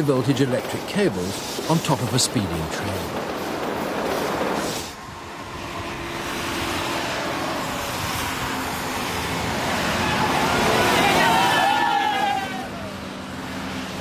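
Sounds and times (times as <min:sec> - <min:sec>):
moving vehicle rumbling: 0:00.0 - 0:14.0.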